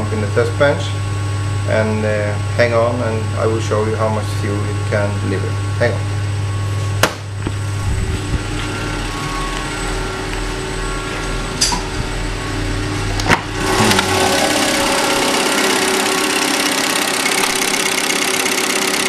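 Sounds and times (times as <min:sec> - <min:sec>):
steady hum: 0:00.0 - 0:19.0
test bench machine running: 0:00.0 - 0:19.0.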